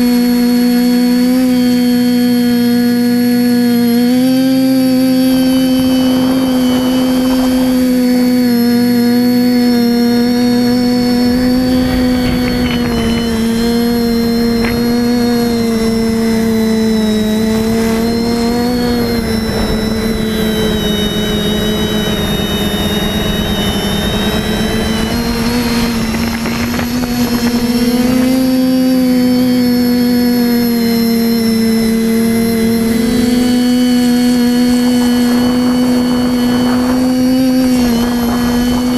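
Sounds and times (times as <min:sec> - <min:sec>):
drone motors whining: 0:00.0 - 0:38.9
wind rushing: 0:10.1 - 0:27.8.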